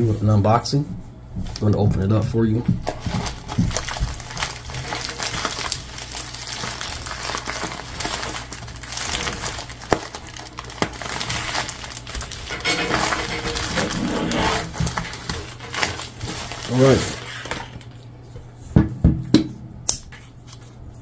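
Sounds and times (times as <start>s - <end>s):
plastic mailer crinkling and tearing: 2.8s - 18.0s.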